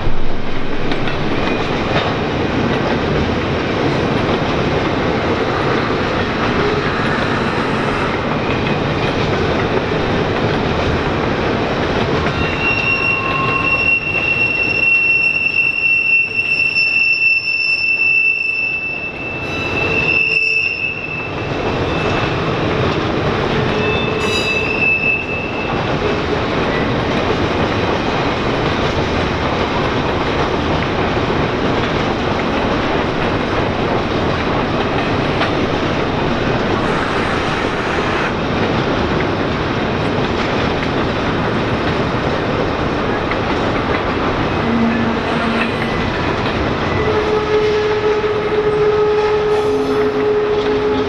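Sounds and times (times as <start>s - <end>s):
train wheels clattering on rails: 0.0s - 51.0s
high-pitched wheel squeal: 12.4s - 22.3s, 23.7s - 25.7s.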